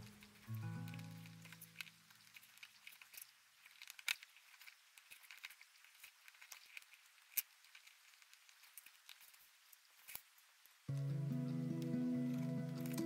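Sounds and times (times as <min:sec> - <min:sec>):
music track: 0:00.0 - 0:01.5, 0:10.9 - 0:13.0
plastic bricks clicking together: 0:00.0 - 0:09.4.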